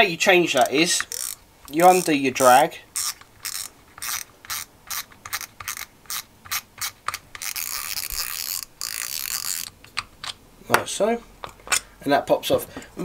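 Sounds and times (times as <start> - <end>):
fishing reel drag clicker ratcheting: 0.6 - 6.2, 7.4 - 9.7.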